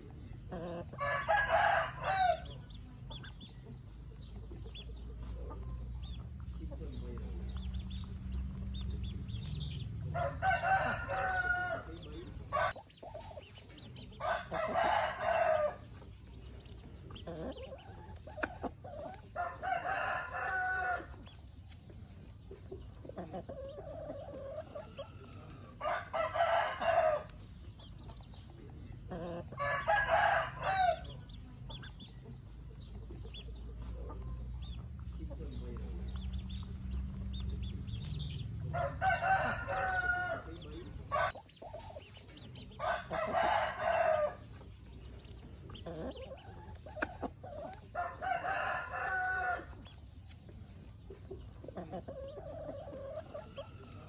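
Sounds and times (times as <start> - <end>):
roosters crowing: 0.5 - 2.8, 6.8 - 12.8, 13.9 - 21.5, 23.2 - 27.6, 28.6 - 31.5, 34.4 - 50.8, 51.7 - 54.0.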